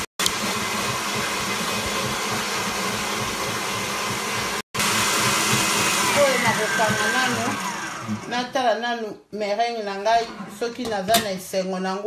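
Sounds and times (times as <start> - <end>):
stand mixer motor whirring: 0.0 - 8.4.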